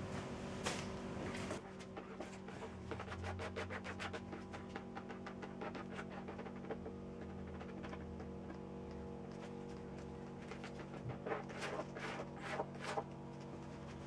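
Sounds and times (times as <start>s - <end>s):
steady low hum: 0.0s - 14.0s
paint pad scraping on wood: 10.6s - 13.1s.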